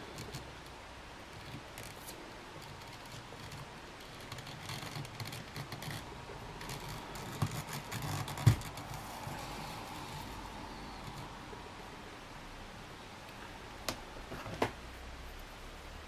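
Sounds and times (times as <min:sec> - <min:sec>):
rustling and scraping handling: 0:00.0 - 0:11.4.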